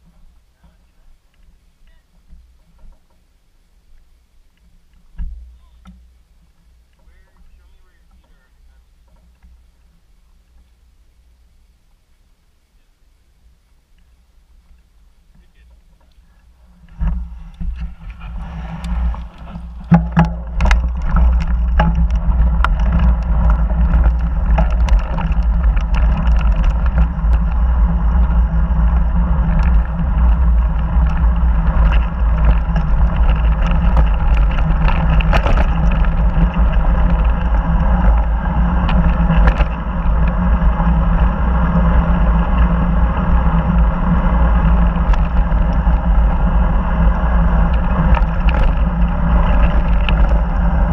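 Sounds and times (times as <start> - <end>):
wind rumble on microphone: 13.0 - 50.9
bike tyres crunching on gravel: 13.8 - 50.9
sharp clicks from stones: 18.8 - 27.6, 29.5 - 39.8.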